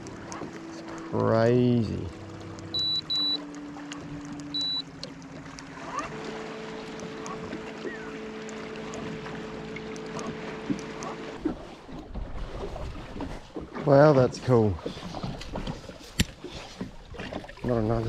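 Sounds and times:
electric trolling motor humming: 0.0s - 12.2s
short high electronic beep: 2.8s - 3.4s, 4.5s - 4.8s.

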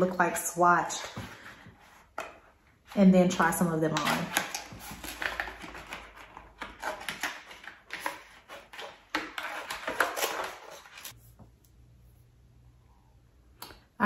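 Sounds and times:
packaging rustling: 4.0s - 11.2s.

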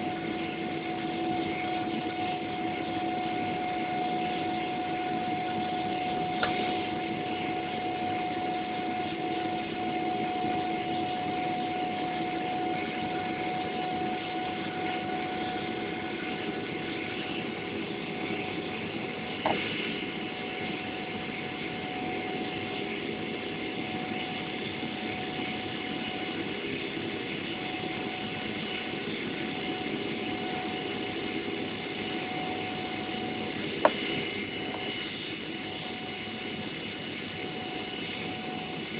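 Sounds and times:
jet engine cabin din: 19.3s - 20.1s.

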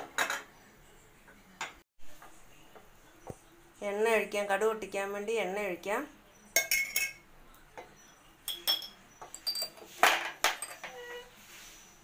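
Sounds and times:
kitchen utensils clinking: 0.0s - 0.6s, 6.5s - 7.2s, 7.8s - 11.3s
metal vessel ringing: 8.5s - 9.8s.

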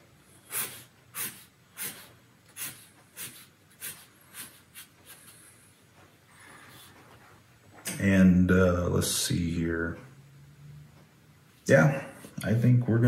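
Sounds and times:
marker scratching on paper: 0.5s - 5.6s.

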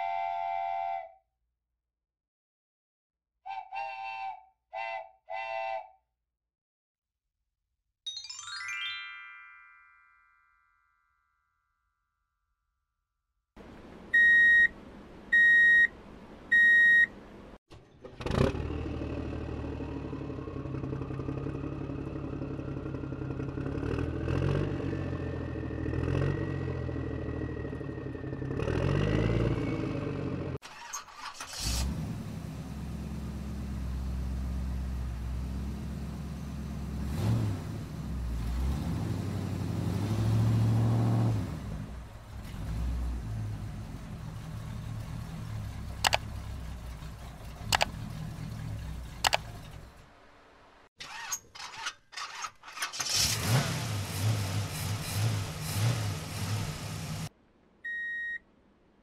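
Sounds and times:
animated vehicle engine effects: 13.6s - 57.3s
short electronic beeps: 14.2s - 14.7s, 15.4s - 15.9s, 16.5s - 17.1s, 57.8s - 58.4s.

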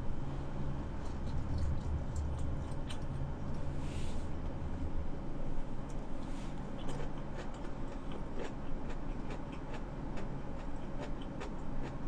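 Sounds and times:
chewing with wet mouth clicks: 1.0s - 3.2s, 6.8s - 12.0s.

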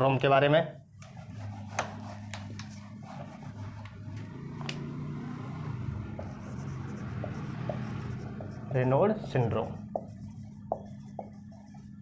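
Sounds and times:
steady low hum: 0.8s - 12.0s
duster rubbing on whiteboard: 1.0s - 4.2s, 6.0s - 12.0s
marker squeaking on whiteboard: 6.2s - 8.8s, 9.4s - 12.0s.

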